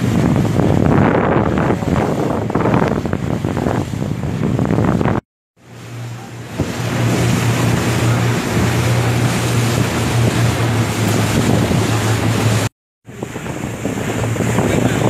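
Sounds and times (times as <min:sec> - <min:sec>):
speedboat engine running: 0:00.0 - 0:15.0
wind and spray rushing: 0:00.0 - 0:15.0.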